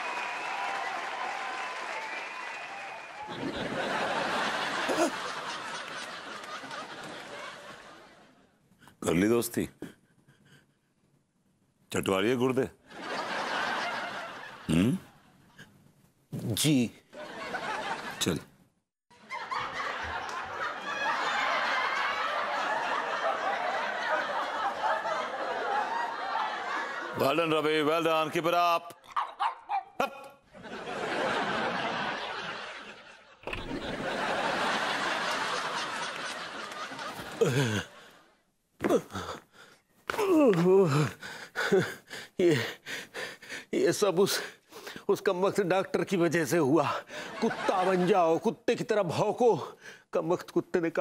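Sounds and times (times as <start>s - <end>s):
laugh track laughter and applause: 0.0s - 8.6s, 12.9s - 15.0s, 19.1s - 43.7s, 46.8s - 48.5s.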